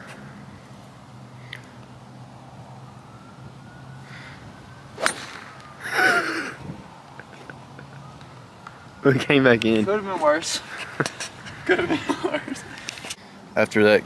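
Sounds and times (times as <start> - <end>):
golf club striking ball: 5.0 - 5.6.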